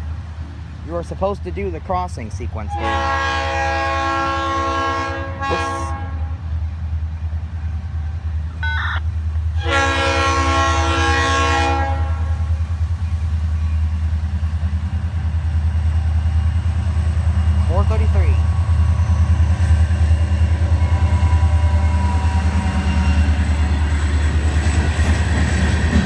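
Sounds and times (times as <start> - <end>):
diesel locomotive rumble: 0.0 - 26.0
locomotive air horn blasts: 2.7 - 6.4, 9.6 - 12.5.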